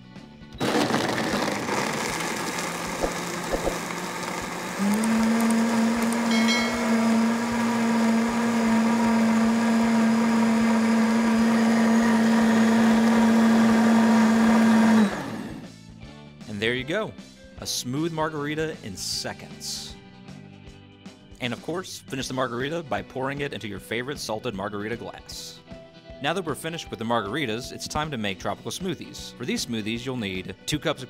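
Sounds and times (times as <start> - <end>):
blender motor crushing ice: 0.6 - 15.7.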